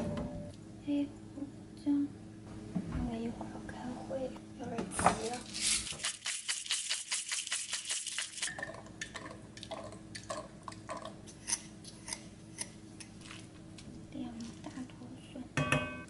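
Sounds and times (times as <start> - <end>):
faint steady hum: 0.0 - 6.0, 7.6 - 16.0
pepper grinder clicking: 5.6 - 8.5.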